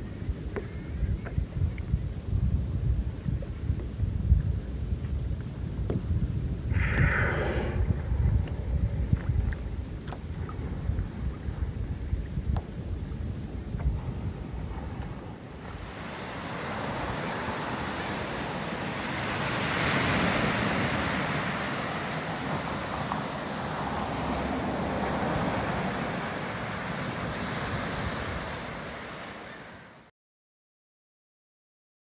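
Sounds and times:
ocean surf washing in: 0:06.6 - 0:11.6, 0:14.0 - 0:30.1.

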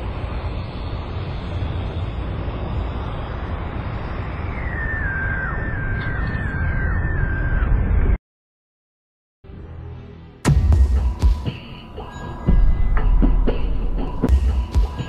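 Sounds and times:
dark rumbling drone: 0:00.0 - 0:08.2, 0:09.5 - 0:15.0.

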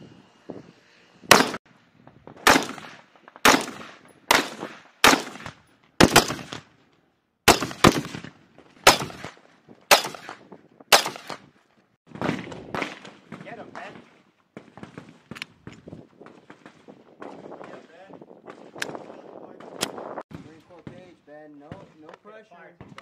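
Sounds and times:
rifle shots echoing: 0:01.3 - 0:01.6, 0:02.4 - 0:06.7, 0:07.5 - 0:11.5, 0:12.1 - 0:13.8.

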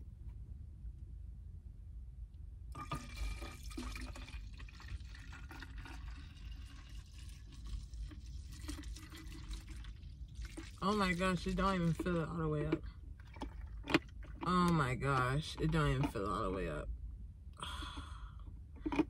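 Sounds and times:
low rumble: 0:00.0 - 0:02.8
liquid pouring into plastic bottle: 0:02.7 - 0:16.3.

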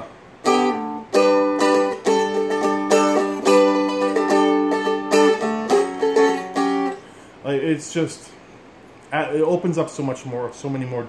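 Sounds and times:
dulcimer chords strummed: 0:00.4 - 0:07.0.

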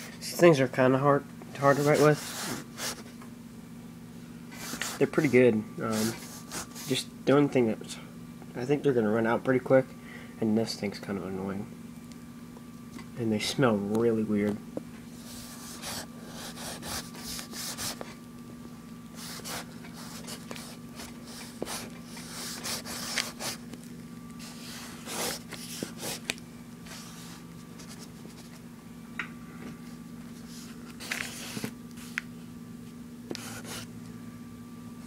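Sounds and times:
low steady hum: 0:00.0 - 0:35.0
marker rubbing on paper: 0:01.6 - 0:03.0, 0:04.6 - 0:07.0, 0:15.2 - 0:18.1, 0:19.2 - 0:23.6, 0:24.4 - 0:26.3, 0:33.3 - 0:33.8.

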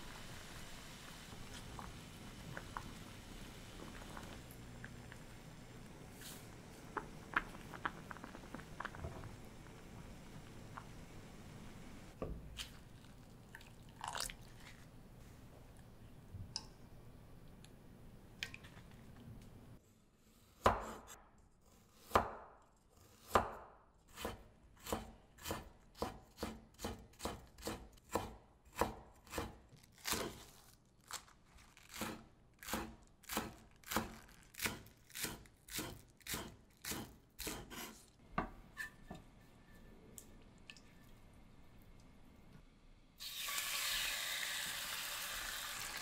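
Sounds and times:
knife chopping on wooden board: 0:22.0 - 0:22.5, 0:23.2 - 0:30.4.

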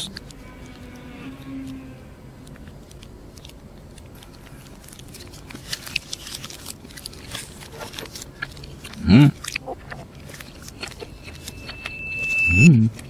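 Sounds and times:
person chewing crunchy food: 0:02.4 - 0:12.3.

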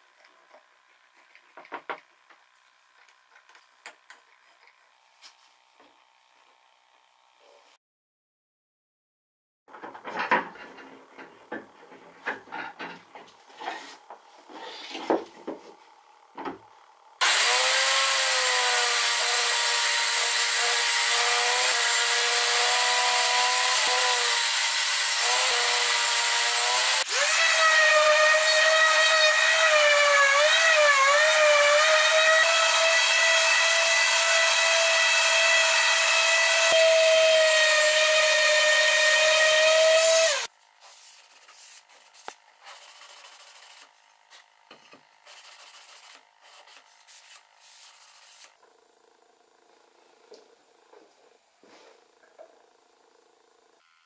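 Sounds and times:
orbital sander whining: 0:17.2 - 0:40.5.

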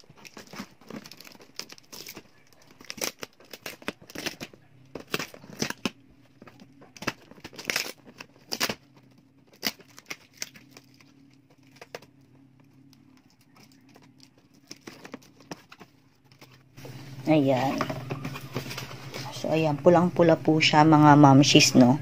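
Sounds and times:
scissors snipping plastic: 0:00.0 - 0:08.8, 0:09.5 - 0:12.1
plastic crinkling: 0:00.0 - 0:19.4.

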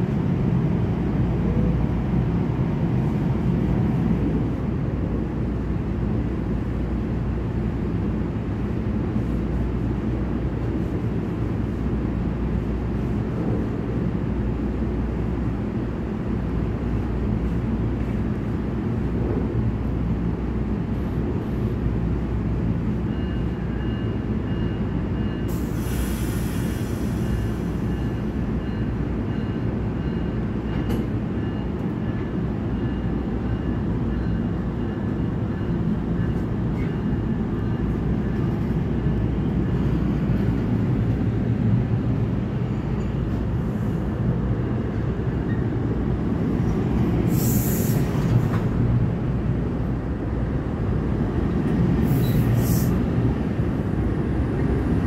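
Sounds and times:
train coaches rumbling: 0:00.0 - 0:55.0
air hiss: 0:47.3 - 0:48.1.

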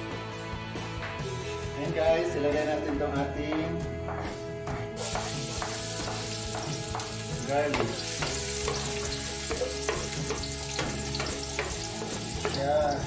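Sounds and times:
garlic sizzling in oil: 0:05.0 - 0:13.0.

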